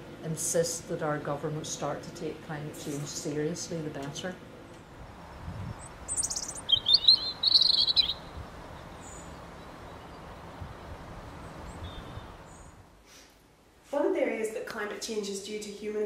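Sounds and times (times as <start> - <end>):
steady background hiss: 0.0 - 16.0
robin singing: 5.3 - 12.8.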